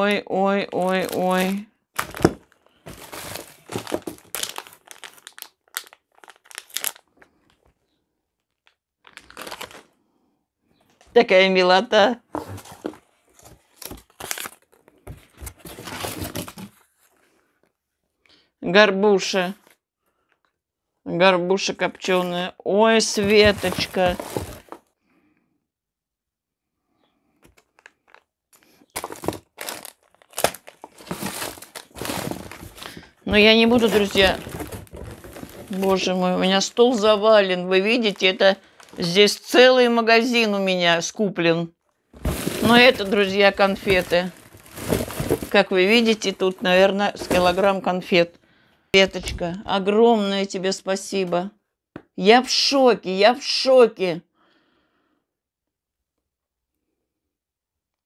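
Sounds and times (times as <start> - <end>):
plastic wrappers crinkling: 0.0 - 7.7, 8.4 - 9.9, 12.4 - 17.2, 23.1 - 24.8, 27.4 - 39.4, 42.2 - 47.9
plastic food packaging rustling: 0.0 - 10.0, 12.3 - 17.5, 23.0 - 25.0, 27.4 - 39.4, 42.0 - 48.1.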